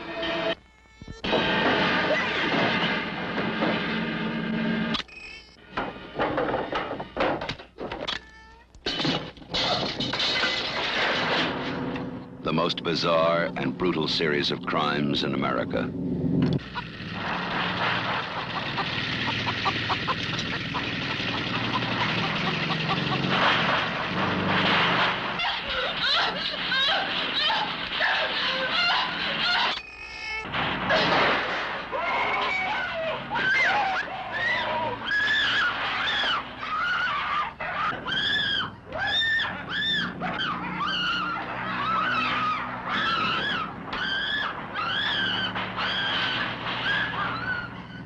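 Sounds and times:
low droning hum: 11.4 - 18.2.

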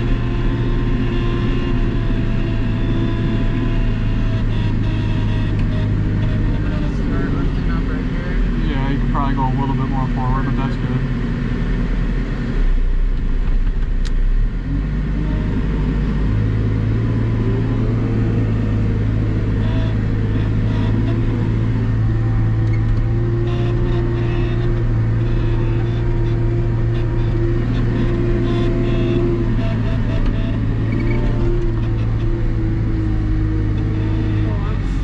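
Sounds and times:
diesel engine running: 0.0 - 35.0.

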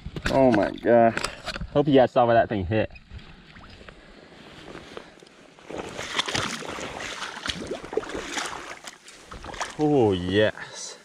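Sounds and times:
wading boots splashing in water: 5.6 - 10.3
flowing water rushing: 5.8 - 10.2.

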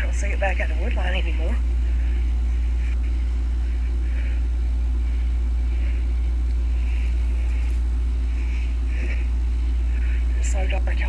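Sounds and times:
soft hissing: 6.7 - 8.2.

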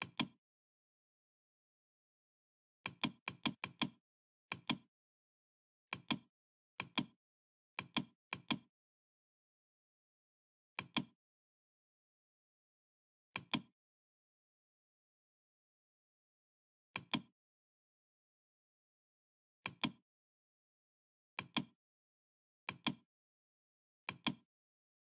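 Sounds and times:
computer mouse clicking: 0.0 - 0.4, 2.9 - 4.9, 5.9 - 7.2, 7.8 - 8.7, 10.8 - 11.1, 13.4 - 13.7, 17.0 - 17.3, 19.7 - 20.0, 21.4 - 21.7, 22.7 - 23.0, 24.1 - 24.4.

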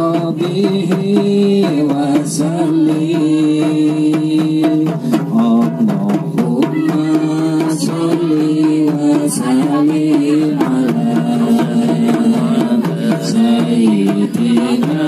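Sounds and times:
frame drums: 0.0 - 15.0
women singing together: 6.4 - 15.0.

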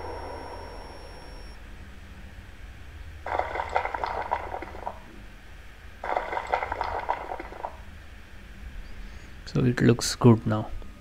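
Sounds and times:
faint steady hum: 0.0 - 11.0
crackling crumbling sound effect: 3.3 - 5.1, 6.0 - 7.8.

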